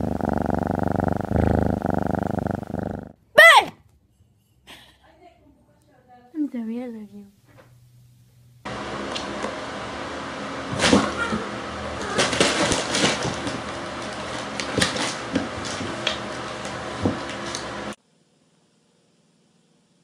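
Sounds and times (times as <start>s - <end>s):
cats tumbling and scrabbling: 12.0s - 17.7s.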